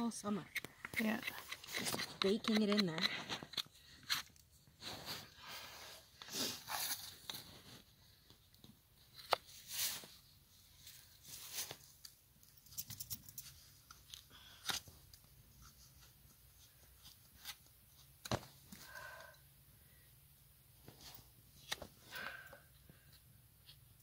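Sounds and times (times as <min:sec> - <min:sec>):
knife cutting and scraping hoof: 0:00.4 - 0:04.4.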